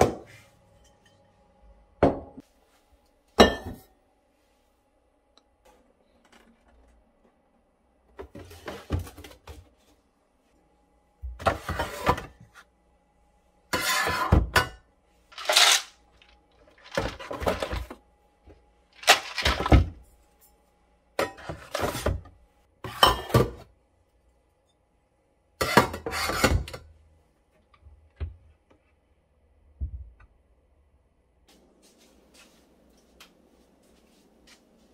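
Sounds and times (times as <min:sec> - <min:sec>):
plastic containers clattering: 0:15.3 - 0:18.0, 0:19.0 - 0:20.0.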